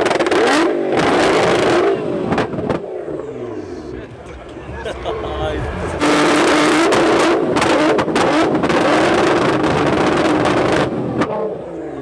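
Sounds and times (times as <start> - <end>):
car engine at high revs: 0.0 - 12.0.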